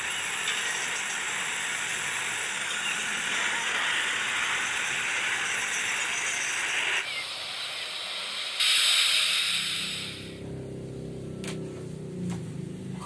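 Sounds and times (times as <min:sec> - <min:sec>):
jet engines roaring with whine: 0:00.0 - 0:10.4.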